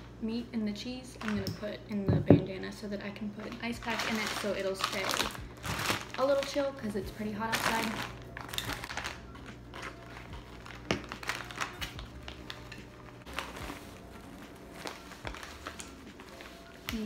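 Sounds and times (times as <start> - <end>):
low steady hum: 0.0 - 17.0
rustling cloth and plastic bags: 3.4 - 17.0.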